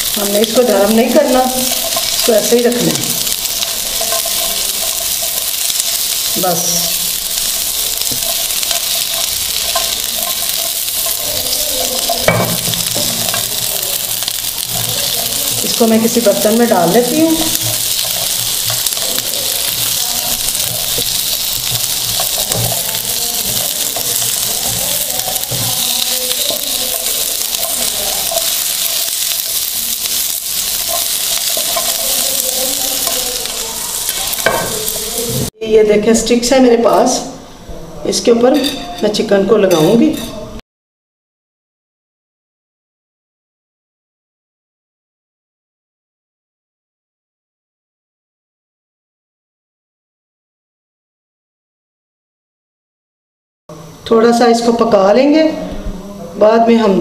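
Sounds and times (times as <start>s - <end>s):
vegetables sizzling in a frying pan: 0.0s - 35.6s.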